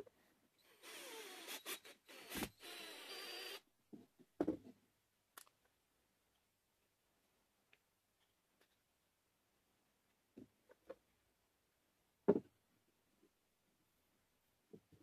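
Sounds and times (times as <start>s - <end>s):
cordless drill boring wood: 0.6s - 3.6s.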